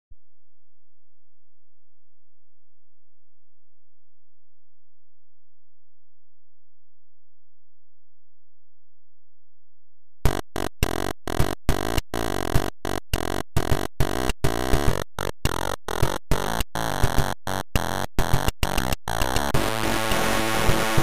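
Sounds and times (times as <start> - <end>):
chiptune music with buzzy square-wave tones: 10.3 - 21.0.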